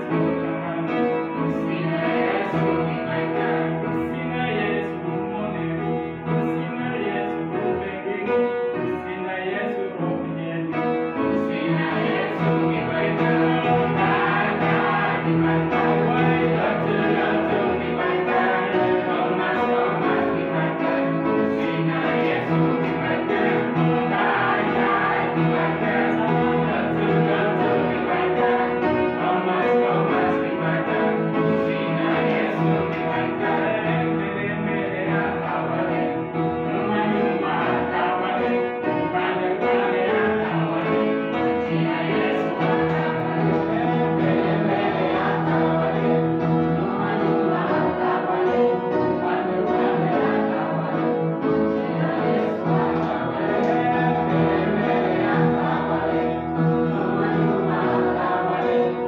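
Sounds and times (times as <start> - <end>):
group singing a hymn: 0.0 - 59.0.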